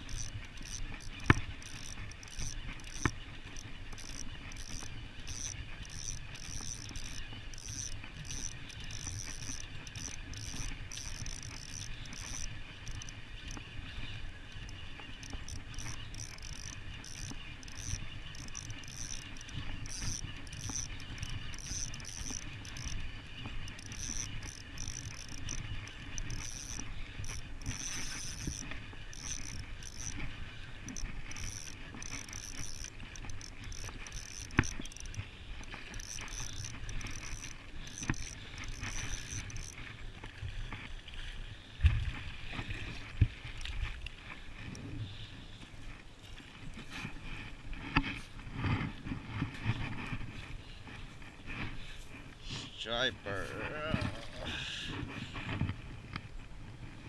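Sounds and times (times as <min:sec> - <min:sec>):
fishing reel gears whirring: 0:00.0 - 0:41.3
fishing rod knocks: 0:00.1 - 0:13.6, 0:14.6 - 0:30.2, 0:35.9 - 0:39.8.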